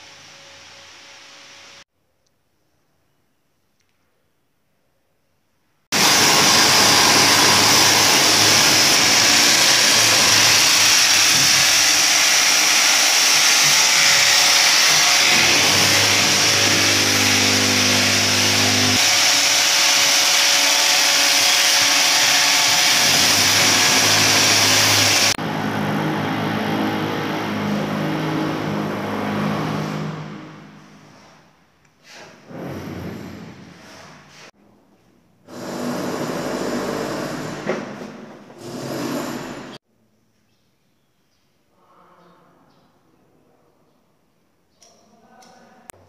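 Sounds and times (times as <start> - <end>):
power tool running: 5.9 - 30.7, 35.5 - 37.8, 38.6 - 39.8.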